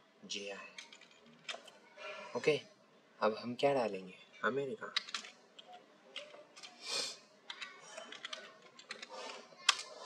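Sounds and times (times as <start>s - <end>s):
computer keyboard typing: 4.9s - 6.8s, 7.5s - 10.0s.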